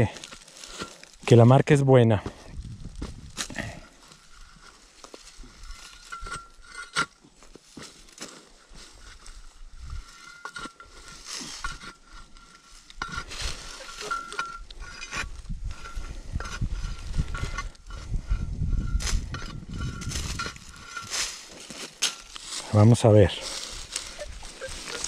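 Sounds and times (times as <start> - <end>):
corn stalks crackling: 0.0 - 2.2, 12.4 - 14.4, 20.0 - 25.0
metal detector beeping: 23.8 - 25.0.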